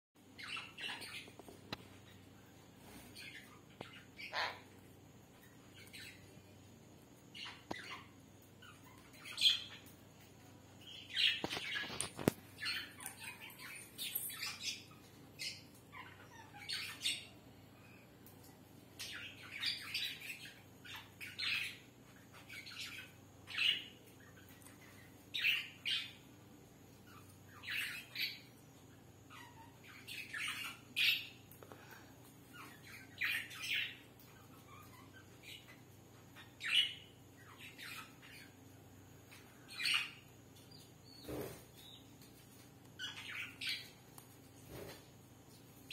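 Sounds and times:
parrot squawking: 4.2 - 4.8.

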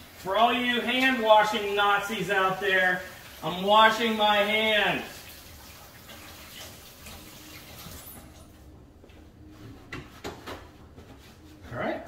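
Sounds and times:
tap running over washing hands: 0.1 - 2.1, 3.0 - 8.2.

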